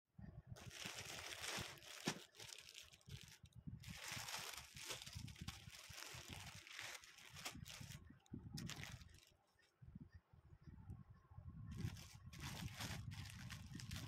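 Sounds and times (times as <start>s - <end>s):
plastic packaging crinkling: 0.6s - 8.0s, 8.6s - 9.3s, 11.8s - 14.0s.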